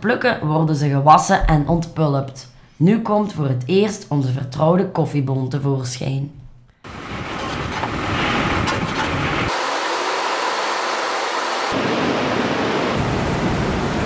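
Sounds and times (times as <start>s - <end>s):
water running through machinery: 6.9s - 11.8s.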